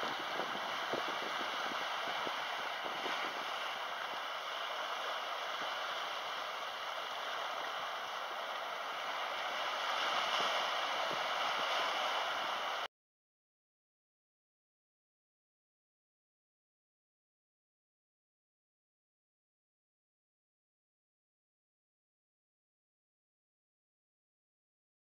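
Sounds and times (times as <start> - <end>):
small waves splashing over rock: 0.0 - 12.9.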